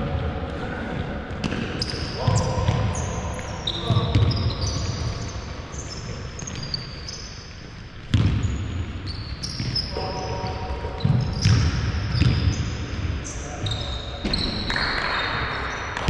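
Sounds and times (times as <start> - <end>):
shoes squeaking on floor: 1.8 - 7.8, 8.4 - 15.1
basketball bouncing on hardwood: 8.1 - 8.5, 11.0 - 12.5.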